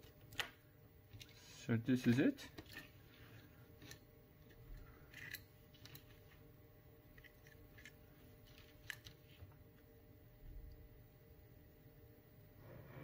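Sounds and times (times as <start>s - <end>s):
clicks of wire leads being bent: 0.0s - 6.4s.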